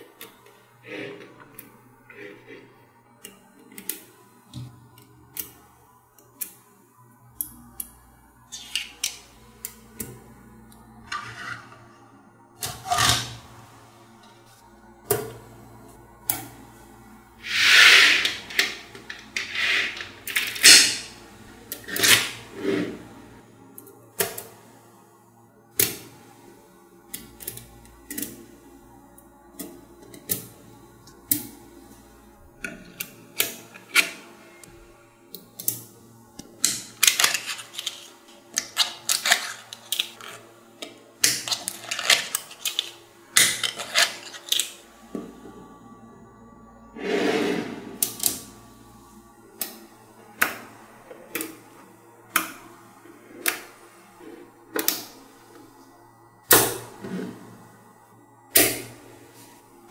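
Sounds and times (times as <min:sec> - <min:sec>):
rattle of many balls shifting: 0:17.4 - 0:21.2, 0:36.7 - 0:40.4, 0:41.3 - 0:44.6.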